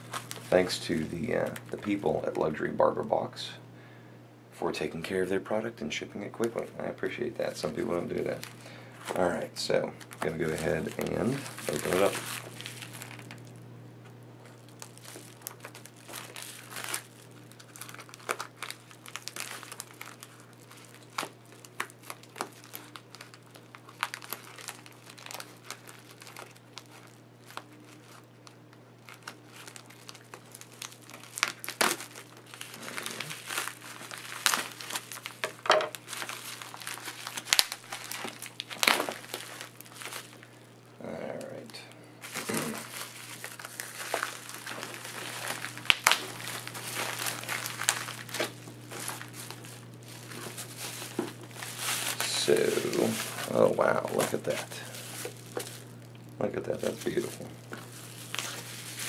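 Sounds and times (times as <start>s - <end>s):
plastic envelope crinkling: 0.0s - 3.4s, 6.2s - 13.6s, 14.4s - 59.0s.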